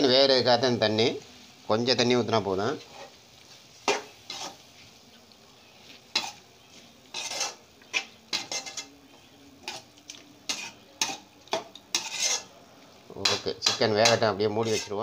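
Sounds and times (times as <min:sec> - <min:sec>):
metal spoon scraping a metal pan: 0:02.8 - 0:03.2, 0:03.8 - 0:04.7, 0:06.1 - 0:06.4, 0:07.1 - 0:12.6, 0:13.2 - 0:15.0.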